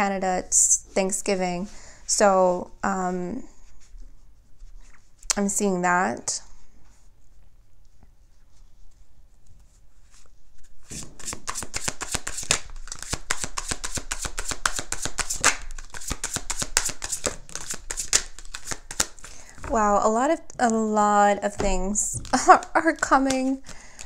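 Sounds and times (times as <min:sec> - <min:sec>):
cards being shuffled: 0:10.1 - 0:19.8, 0:21.6 - 0:24.0.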